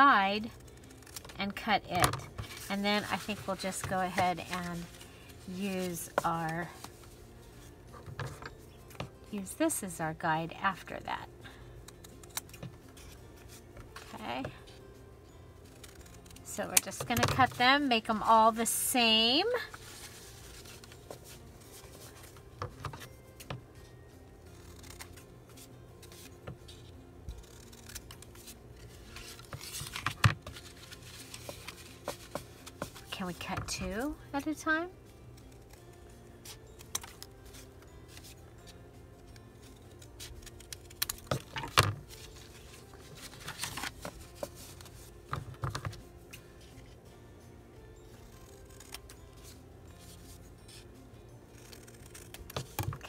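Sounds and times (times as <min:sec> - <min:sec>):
faint background music: 0:00.0 - 0:53.0
paper handling: 0:00.6 - 0:07.2, 0:19.6 - 0:23.6, 0:24.5 - 0:34.0, 0:39.3 - 0:47.0
scissors snipping paper: 0:27.4 - 0:33.0, 0:48.3 - 0:49.2, 0:51.5 - 0:53.0.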